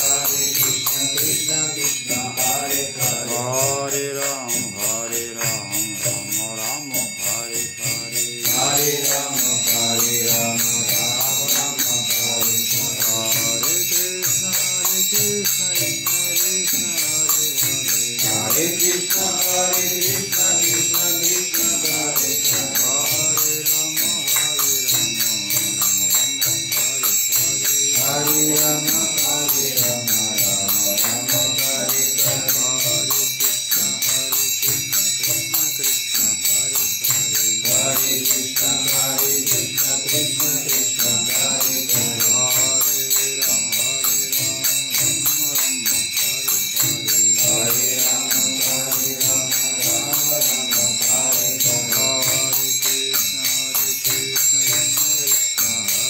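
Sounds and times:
devotional chant singing: 0.0s - 56.0s
small hand cymbals ringing: 0.0s - 56.0s.

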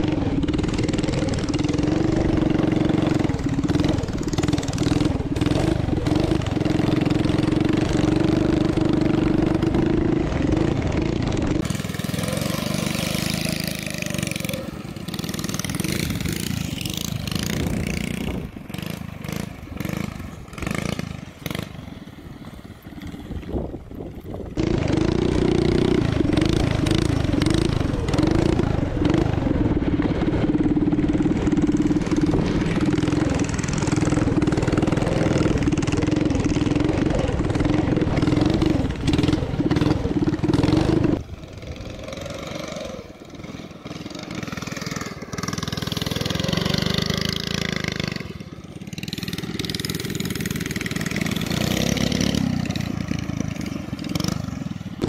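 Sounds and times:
small engine revving: 0.0s - 55.0s.

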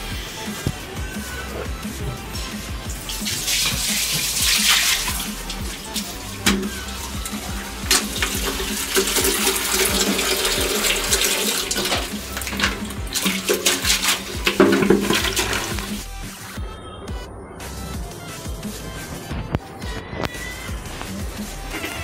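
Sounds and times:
music: 0.0s - 22.0s
water splashing from a bucket: 2.8s - 16.1s.

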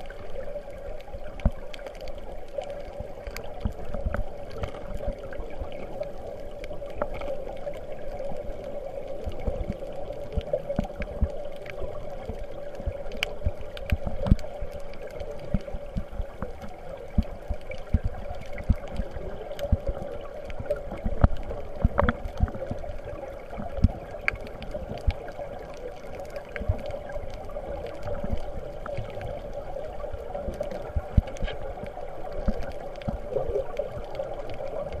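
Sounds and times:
muffled underwater rush: 0.0s - 35.0s
water knocking against microphone: 20.9s - 22.8s.

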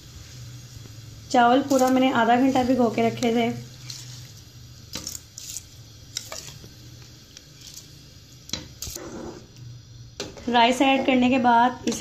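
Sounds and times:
bowl knocking and scraping pot: 8.6s - 9.5s.

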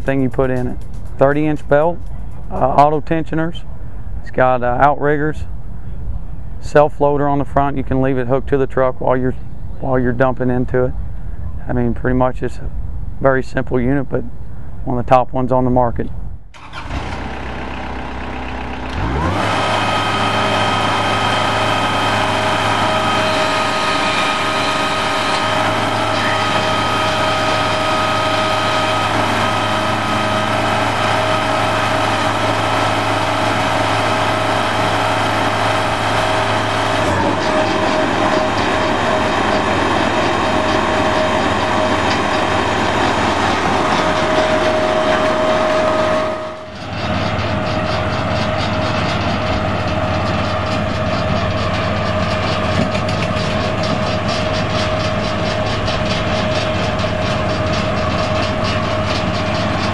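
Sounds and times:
deep hum: 16.1s - 59.9s
conveyor belt whine: 16.6s - 59.9s
engine idling and revving: 16.6s - 59.9s.

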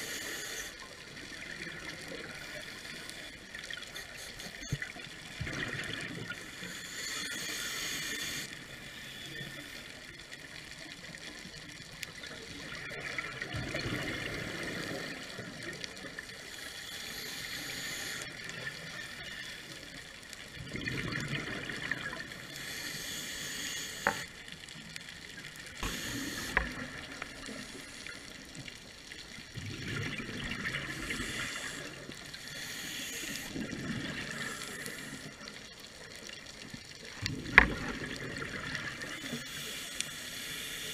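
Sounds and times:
diver breathing through regulator: 6.4s - 9.7s, 16.4s - 19.8s, 22.4s - 24.4s, 25.8s - 28.3s, 30.8s - 35.4s, 39.1s - 40.9s.

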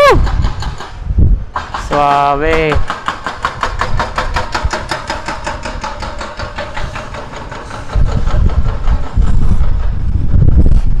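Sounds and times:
motorcycle engine rumbling: 3.6s - 11.0s.

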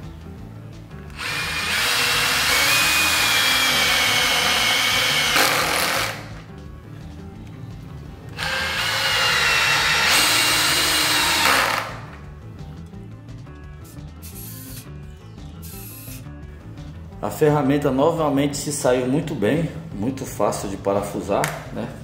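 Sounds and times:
drill driving screw into wood: 1.1s - 6.3s, 8.4s - 12.1s.

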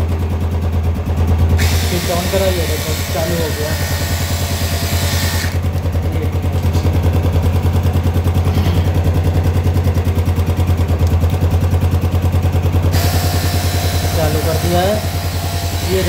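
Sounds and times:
motorcycle engine idling: 0.0s - 16.0s
tyre inflator compressor pulsing: 1.2s - 16.0s.

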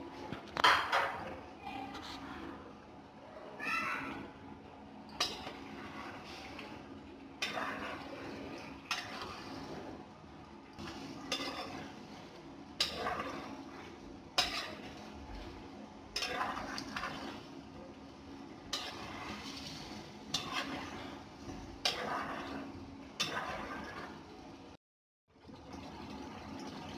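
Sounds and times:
scraping through frying food: 5.2s - 10.1s, 10.8s - 24.4s.

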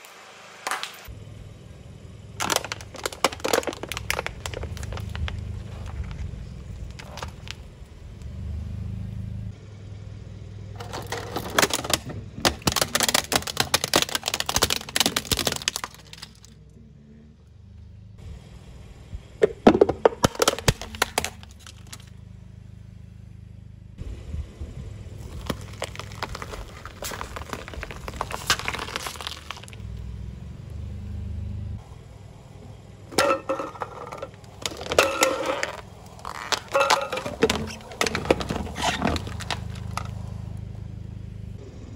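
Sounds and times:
slowly moving car rumble: 1.0s - 41.9s
tyre crushing plastic containers: 2.4s - 7.6s, 10.8s - 16.6s, 19.4s - 22.1s, 25.2s - 29.8s, 33.1s - 40.3s.

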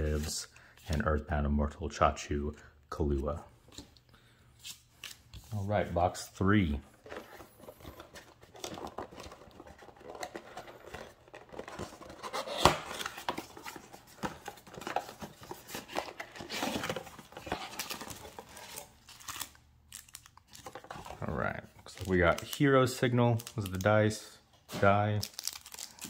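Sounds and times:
foil packs crinkling: 25.0s - 26.0s.

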